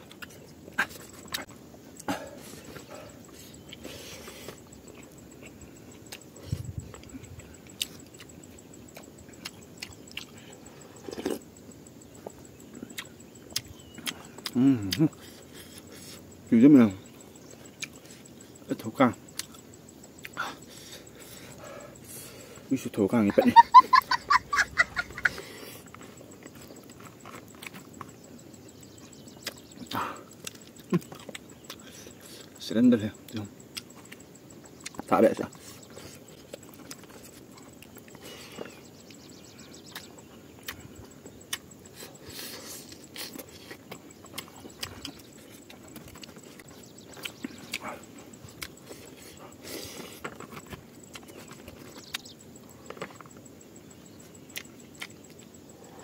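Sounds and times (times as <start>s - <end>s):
chewing with small clicks: 0.0s - 23.4s, 24.0s - 56.0s.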